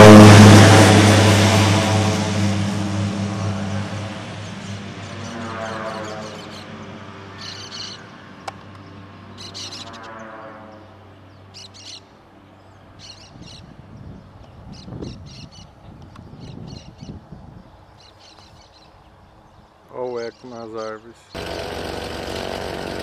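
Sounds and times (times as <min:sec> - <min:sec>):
propeller plane passing low: 0:00.0 - 0:14.0
birds calling: 0:04.5 - 0:23.0.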